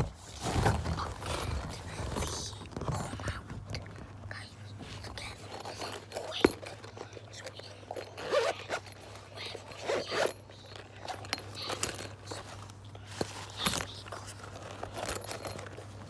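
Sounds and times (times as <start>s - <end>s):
bag rustling and handling: 0.0s - 16.0s
zipper on fabric bag: 8.0s - 10.4s.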